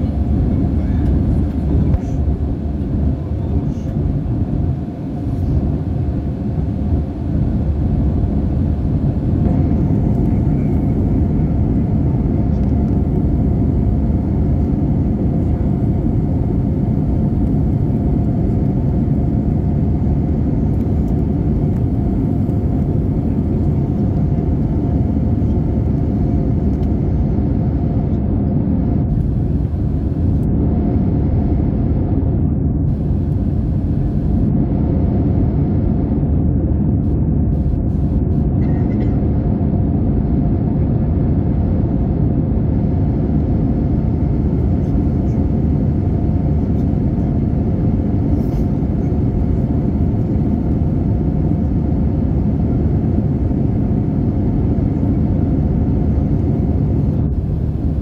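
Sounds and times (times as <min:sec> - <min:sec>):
faint steady hum: 0:00.0 - 0:58.0
jet engine cabin drone: 0:00.0 - 0:58.0.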